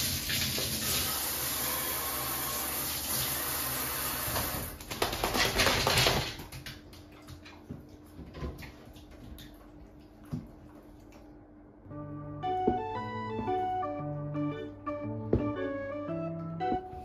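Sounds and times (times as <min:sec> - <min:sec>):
shower water running: 0:00.0 - 0:11.4
dog shaking water from coat: 0:04.4 - 0:06.9.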